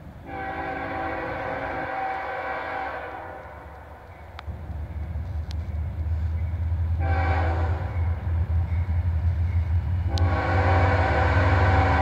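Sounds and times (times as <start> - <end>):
low train rumble: 0.0 - 12.0
locomotive air horn: 0.3 - 3.8, 7.0 - 8.0, 10.1 - 12.0.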